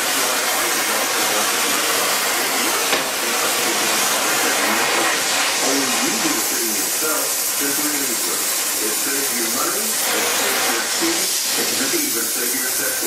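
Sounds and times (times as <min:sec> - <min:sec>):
torch flame hissing: 0:00.0 - 0:13.0.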